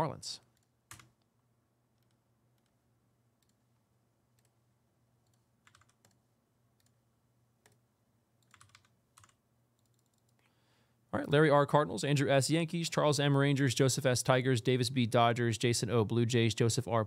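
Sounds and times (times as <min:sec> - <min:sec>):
keyboard and mouse clicks: 0:00.5 - 0:01.3, 0:02.0 - 0:02.8, 0:03.4 - 0:03.6, 0:04.3 - 0:04.6, 0:05.2 - 0:06.2, 0:07.6 - 0:07.8, 0:08.4 - 0:10.5.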